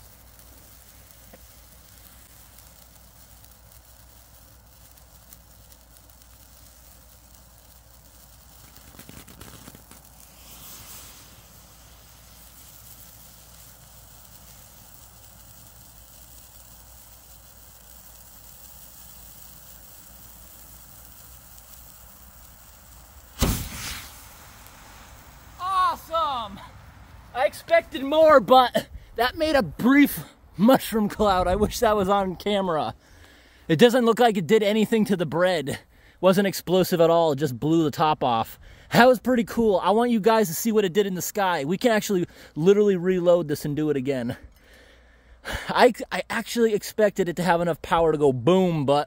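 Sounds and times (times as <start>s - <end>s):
fuse sizzling: 0.0s - 35.6s
loud blast: 23.3s - 29.0s.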